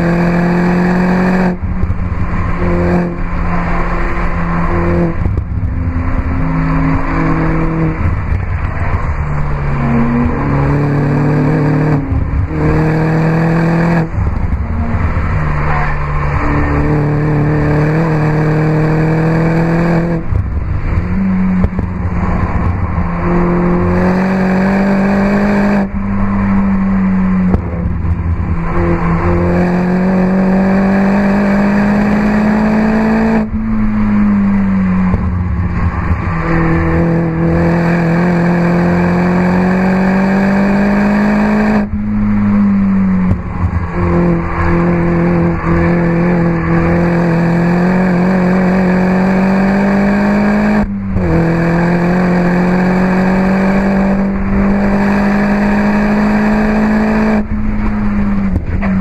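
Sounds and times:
car engine revving hard: 0.0s - 26.0s, 26.7s - 59.0s.

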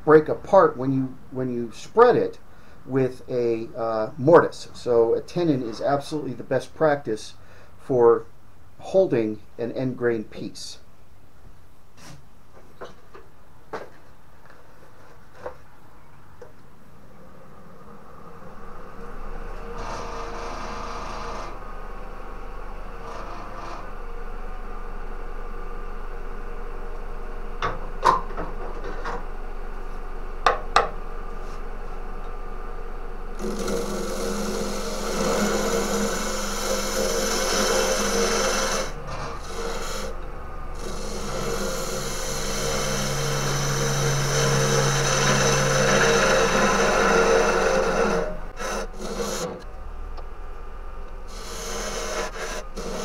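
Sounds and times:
wood lathe spinning: 18.9s - 21.6s, 23.0s - 24.0s, 33.4s - 49.7s, 51.3s - 53.0s
turning tool cutting wood: 19.6s - 21.6s, 23.0s - 23.9s, 33.4s - 49.7s, 51.3s - 53.0s.

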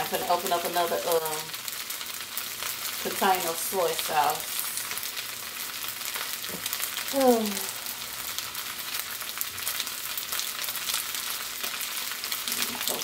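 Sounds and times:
rice sizzling in a pan: 0.0s - 13.0s.

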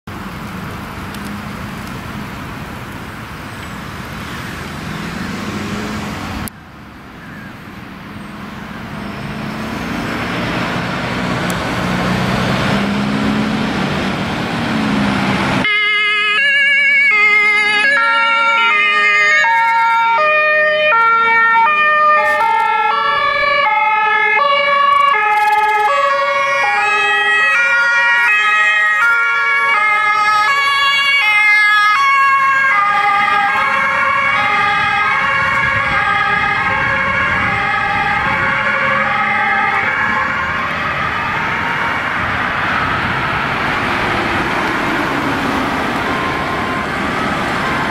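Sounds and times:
emergency vehicle engines: 0.0s - 47.9s
two-tone sirens: 0.3s - 47.9s.

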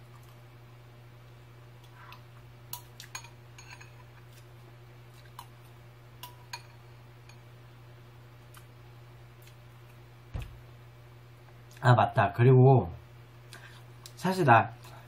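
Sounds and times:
steady low hum: 0.0s - 15.0s
metal spoon clinking on ceramic bowl: 2.8s - 4.0s.

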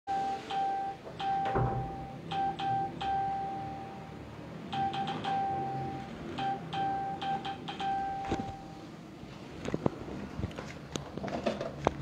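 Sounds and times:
electronic beeps: 0.1s - 8.8s.

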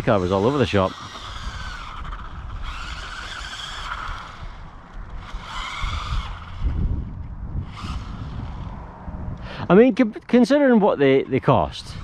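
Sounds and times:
electric motor whining: 0.0s - 9.1s.

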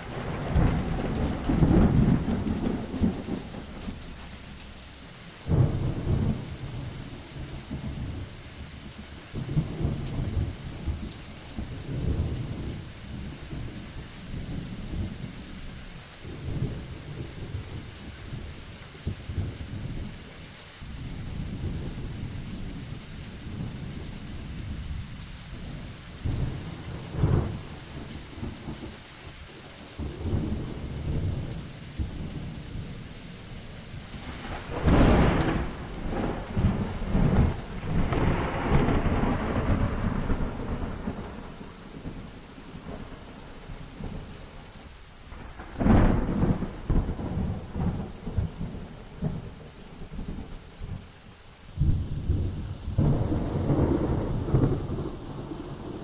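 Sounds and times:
loud thunderclaps: 0.0s - 4.4s, 5.4s - 8.3s, 24.7s - 28.9s, 34.0s - 44.3s, 45.3s - 51.0s, 51.8s - 56.0s
low rumbling thunder: 0.0s - 20.3s, 20.9s - 44.6s, 45.2s - 51.1s, 51.7s - 56.0s
steady rain: 0.0s - 56.0s.

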